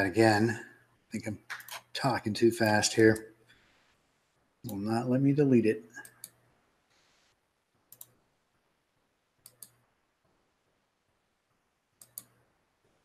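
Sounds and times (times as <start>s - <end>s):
computer mouse double-clicks: 7.9s - 8.2s, 9.4s - 9.8s, 12.0s - 12.4s.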